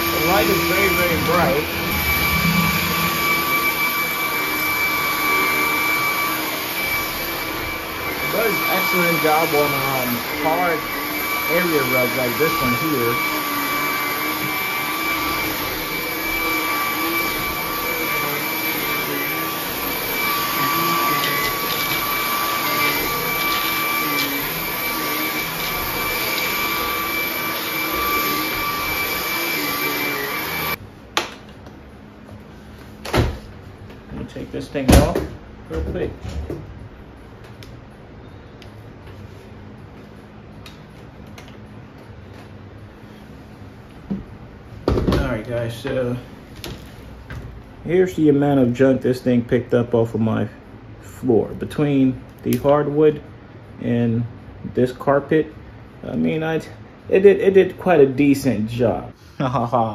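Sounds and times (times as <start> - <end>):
stick vacuum whining: 0.0 - 30.8.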